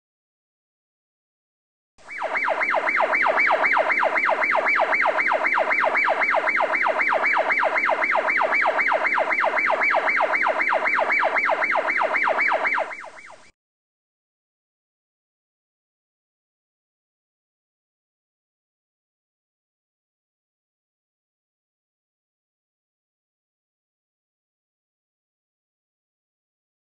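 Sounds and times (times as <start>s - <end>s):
electronic siren yelping: 2.0s - 13.5s.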